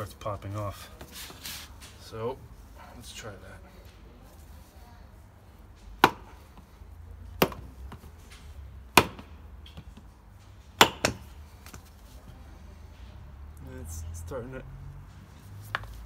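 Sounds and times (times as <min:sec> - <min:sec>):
rubber mallet striking metal: 0:08.9 - 0:09.8, 0:10.8 - 0:11.4.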